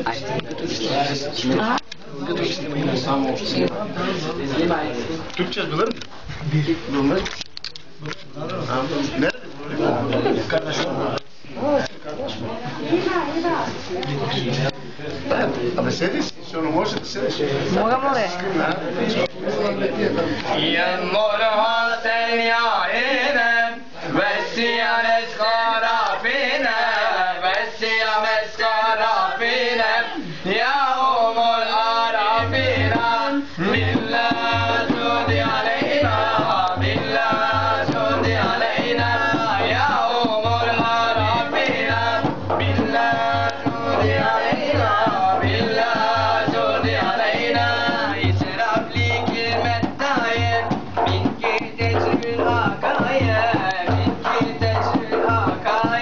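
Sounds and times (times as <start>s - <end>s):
men singing a hymn: 18.5s - 56.0s
low drum beat: 30.6s - 56.0s.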